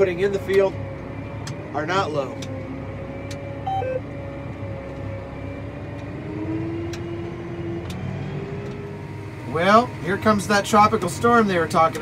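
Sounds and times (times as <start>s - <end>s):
tractor engine droning: 0.0s - 12.0s.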